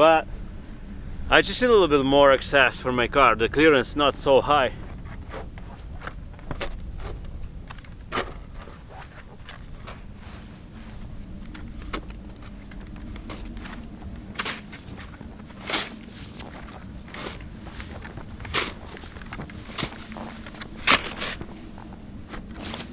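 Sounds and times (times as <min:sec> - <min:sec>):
snow shovel scraping snow: 0:08.2 - 0:11.9, 0:13.2 - 0:22.9.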